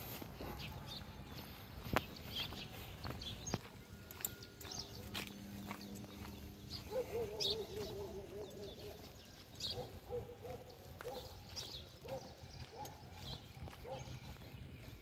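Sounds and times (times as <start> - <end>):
bird cooing: 6.8 - 9.0.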